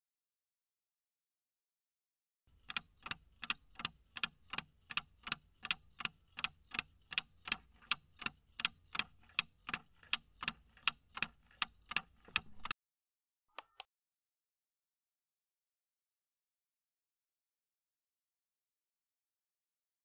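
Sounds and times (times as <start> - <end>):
clock ticking: 2.5 - 12.8
short clicks: 13.6 - 13.9.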